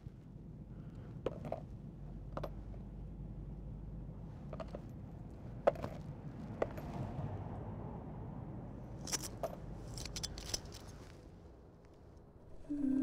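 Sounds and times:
low rumble of ambience: 0.0s - 13.0s.

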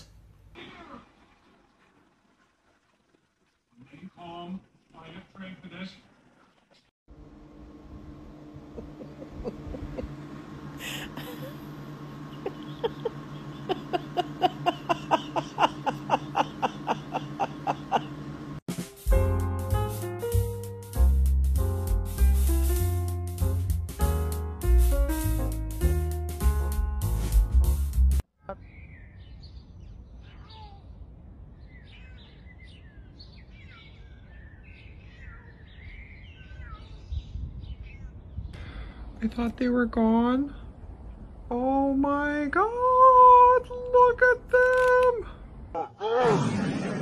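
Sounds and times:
low outdoor rumble: 7.1s - 20.4s, 37.5s - 47.0s
music with a beat: 18.7s - 28.2s
small birds chirping: 28.4s - 39.0s
cat mewing: 30.2s - 31.0s.

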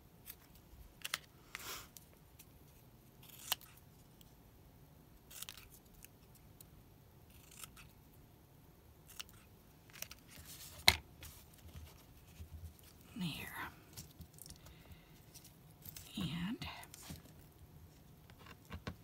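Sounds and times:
scissors snipping paper: 3.2s - 3.8s, 5.3s - 6.1s, 7.3s - 8.0s, 9.0s - 10.2s.

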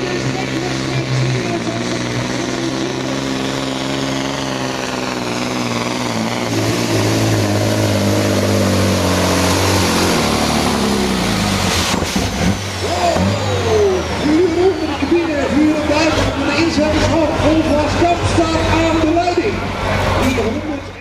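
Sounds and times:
truck diesel engine under load: 0.0s - 21.0s.

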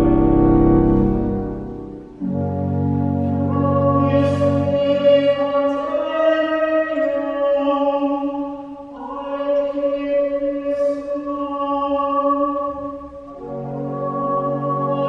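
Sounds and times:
pipe organ: 0.0s - 8.2s, 13.2s - 15.0s
soprano singing held notes: 0.0s - 15.0s.

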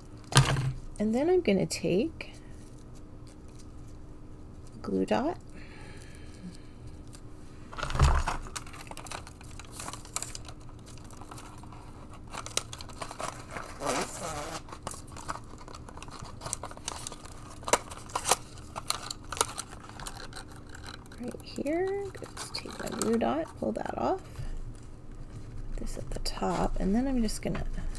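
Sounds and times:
ribbon bow crinkling: 6.5s - 23.8s.

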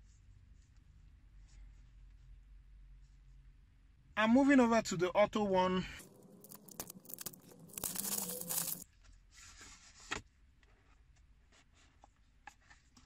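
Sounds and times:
plastic wrap tearing and crinkling: 6.0s - 8.8s.

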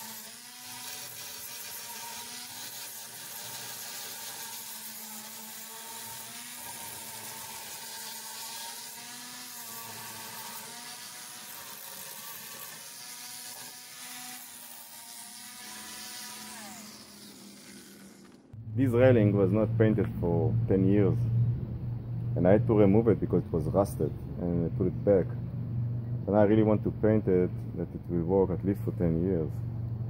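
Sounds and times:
angle grinder grinding metal: 0.0s - 20.4s.

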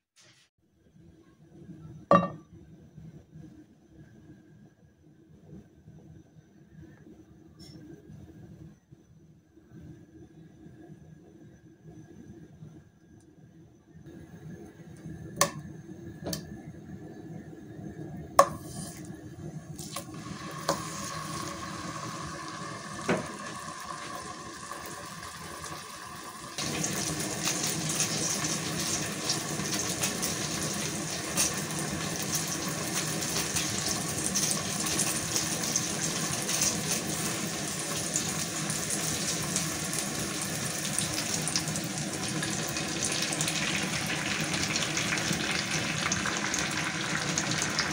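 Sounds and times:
tomato slices sizzling in oil: 18.4s - 47.9s.

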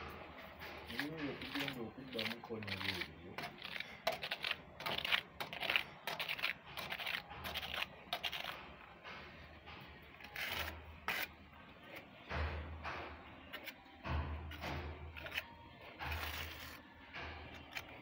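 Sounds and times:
scraping on textured wall: 0.5s - 12.1s, 14.5s - 18.0s.

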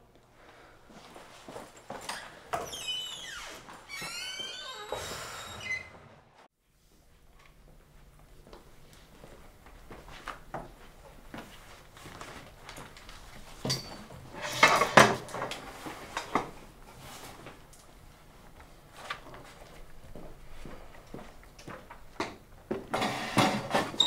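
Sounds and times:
chair and table knocks and scrapes: 13.6s - 15.5s, 22.8s - 24.0s.

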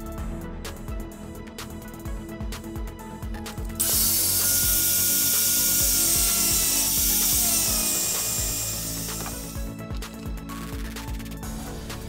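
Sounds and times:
angle grinder cutting metal: 3.8s - 9.8s.

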